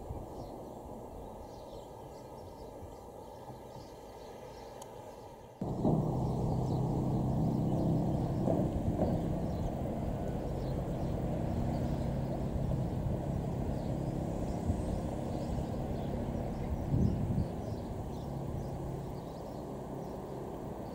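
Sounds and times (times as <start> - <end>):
vehicle engine droning: 5.6 - 20.9.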